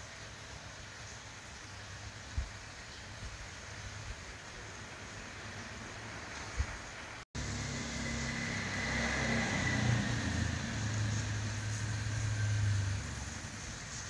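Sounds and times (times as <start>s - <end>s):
low motor hum: 7.4s - 14.0s.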